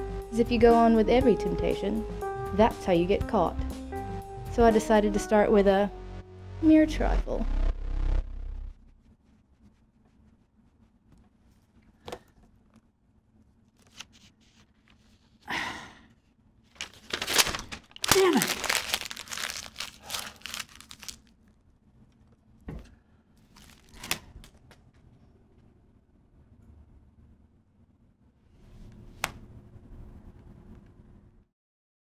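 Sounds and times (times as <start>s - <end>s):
paper crinkling and rustling: 13.7s - 15.4s, 16.7s - 21.3s, 23.4s - 24.7s.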